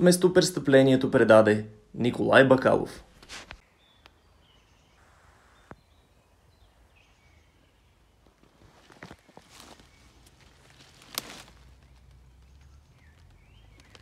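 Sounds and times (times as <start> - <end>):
distant bird calls: 3.6 - 14.0
footsteps through undergrowth: 8.1 - 14.0.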